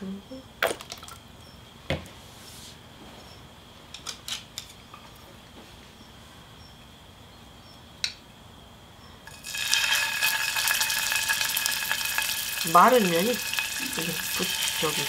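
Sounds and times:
meat sizzling in oil: 0:09.3 - 0:15.0.

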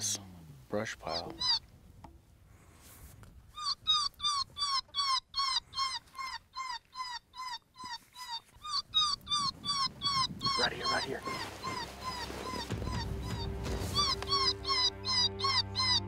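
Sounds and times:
electronic high yelps: 0:03.6 - 0:16.0.

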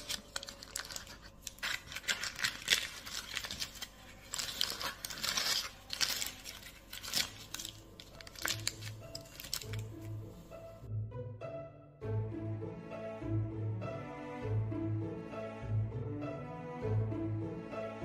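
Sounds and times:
parchment paper crinkling: 0:00.0 - 0:10.5.

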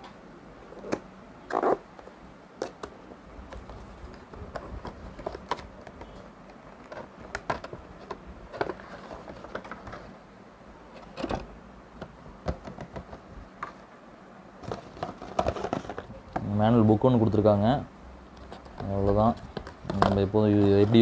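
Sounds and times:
packaging rustling and clicking: 0:06.8 - 0:10.1, 0:14.6 - 0:16.2.

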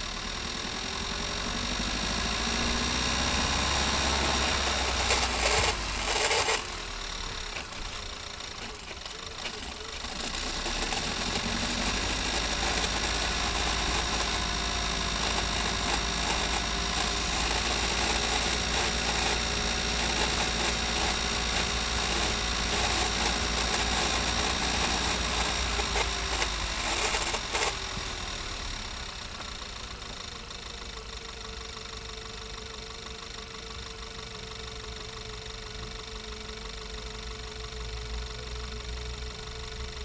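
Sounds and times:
gearbox hum and whirr: 0:00.0 - 0:40.0
drivetrain winding down: 0:01.0 - 0:31.4.

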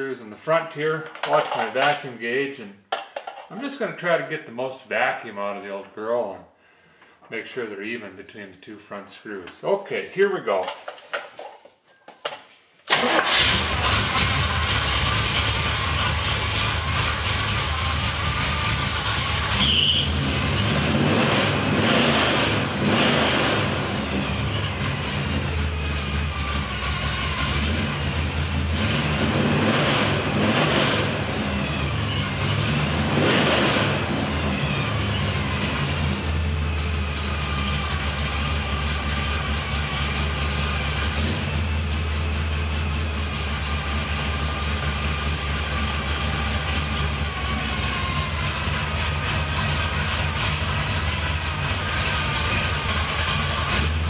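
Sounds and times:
car engine idling: 0:12.9 - 0:54.0
engine revving: 0:12.9 - 0:54.0.

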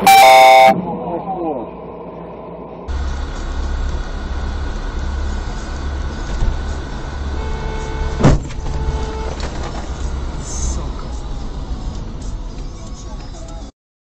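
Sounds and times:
steady pitched tone: 0:00.0 - 0:01.1, 0:02.9 - 0:09.4
car driving road rumble: 0:02.9 - 0:13.7
loud thump: 0:08.0 - 0:09.9.

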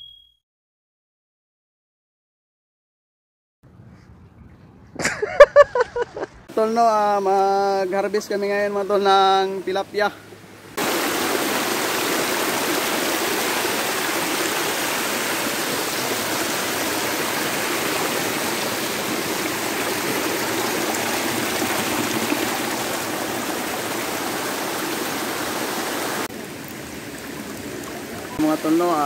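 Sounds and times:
water rushing over rocks: 0:10.8 - 0:29.0.

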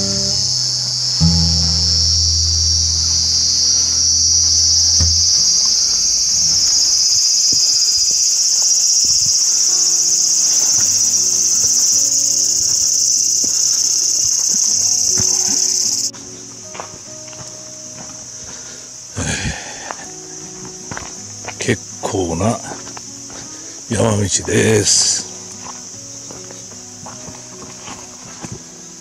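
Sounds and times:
cicadas buzzing: 0:00.0 - 0:29.0
soft acoustic guitar music: 0:00.0 - 0:29.0.

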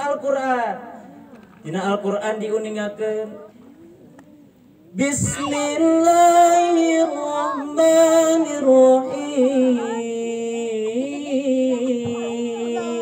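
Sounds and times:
man chanting through amplifier: 0:04.9 - 0:13.0.

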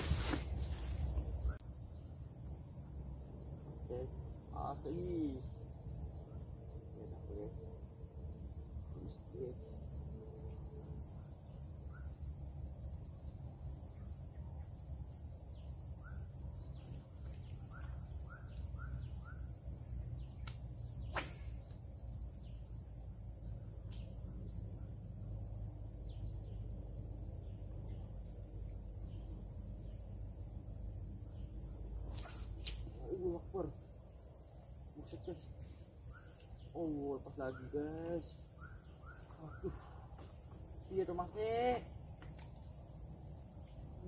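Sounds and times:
crickets and insects droning: 0:00.0 - 0:44.0
bird chirps: 0:16.0 - 0:19.6, 0:37.4 - 0:40.1.

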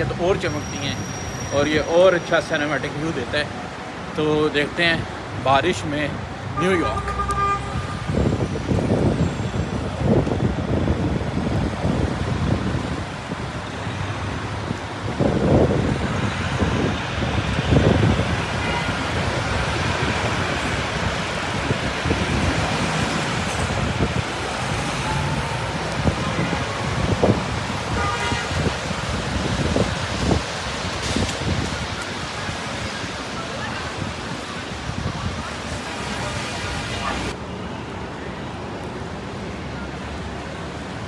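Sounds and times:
traffic passing on wet road: 0:00.0 - 0:41.0
car horn: 0:06.6 - 0:08.1, 0:27.9 - 0:28.7
rain on road: 0:10.0 - 0:37.3.

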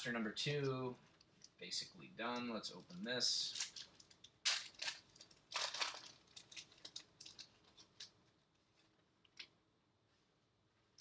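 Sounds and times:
wrapper crinkling: 0:02.7 - 0:08.9.

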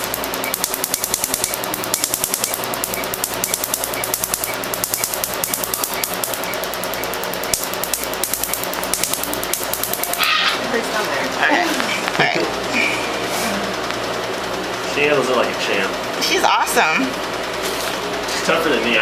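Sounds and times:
laser sharp snaps: 0:00.0 - 0:10.3
machine hum: 0:00.0 - 0:19.0.

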